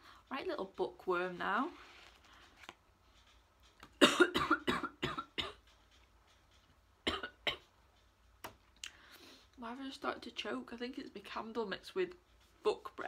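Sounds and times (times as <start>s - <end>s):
woman coughing: 4.0s - 5.6s, 7.1s - 7.6s.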